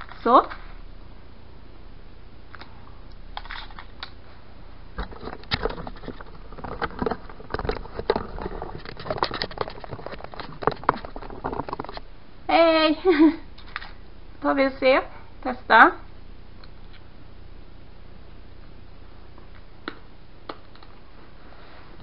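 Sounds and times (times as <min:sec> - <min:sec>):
camera handling clicks and rustles: 0:03.4 - 0:04.1.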